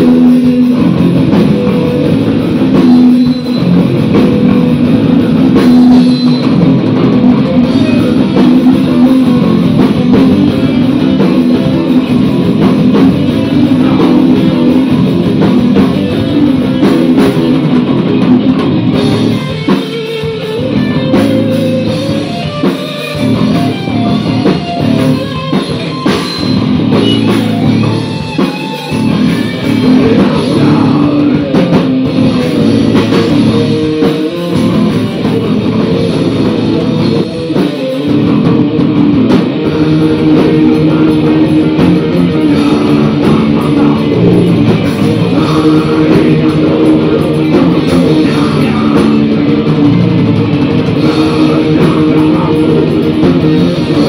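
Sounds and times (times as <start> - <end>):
heavy metal band playing live: 0.0 - 54.0.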